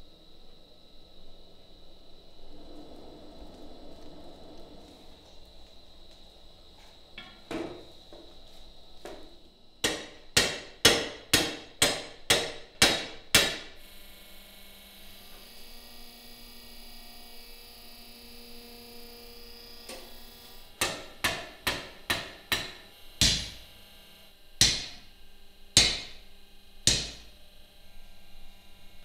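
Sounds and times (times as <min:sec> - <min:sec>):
machine hum: 0:00.0 - 0:11.2
hammer ringing on anvil: 0:25.8 - 0:26.2, 0:26.9 - 0:27.3.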